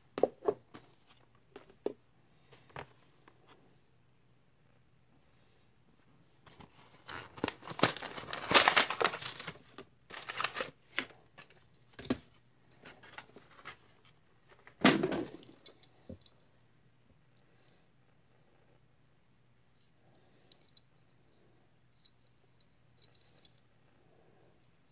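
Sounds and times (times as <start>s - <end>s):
plastic packaging crinkling and tearing: 7.0s - 11.1s.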